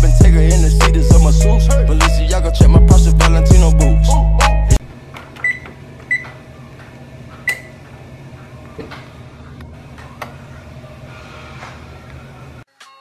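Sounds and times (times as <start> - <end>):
oven keypad beeping: 5.4 - 6.4, 7.4 - 7.8.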